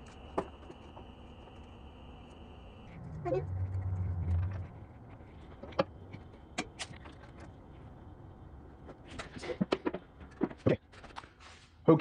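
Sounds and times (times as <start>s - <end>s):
low rumble: 2.8s - 6.3s.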